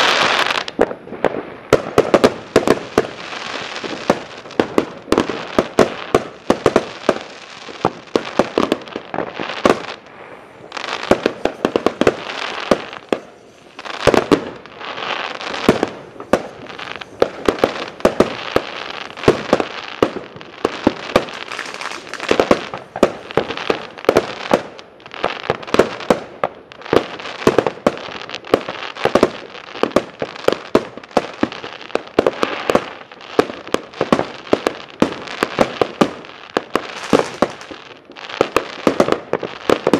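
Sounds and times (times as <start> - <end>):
fireworks bangs: 0.0 - 39.9
fireworks crackling: 0.0 - 39.9.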